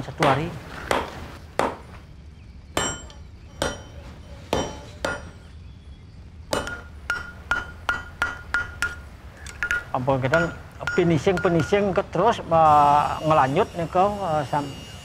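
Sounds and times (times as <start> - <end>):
hammer striking metal on anvil: 2.8 - 5.5, 6.5 - 12.2.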